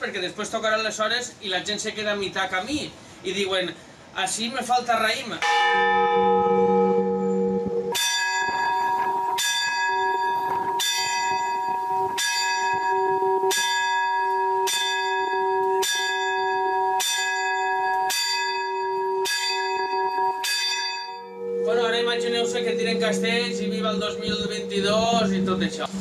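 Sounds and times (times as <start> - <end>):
church bell ringing: 5.4 - 26.0.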